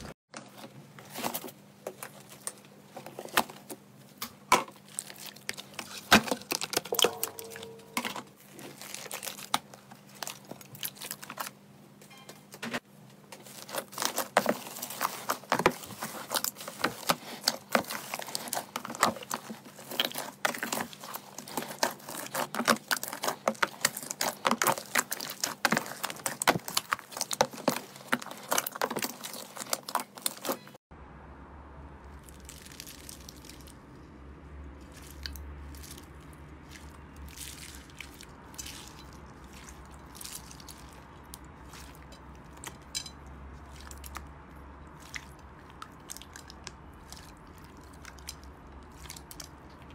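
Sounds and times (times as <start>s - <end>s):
low steady hum: 0.0s - 49.9s
hands squeezing sticky slime: 13.4s - 30.7s, 32.2s - 33.9s, 34.8s - 43.0s, 43.6s - 49.9s.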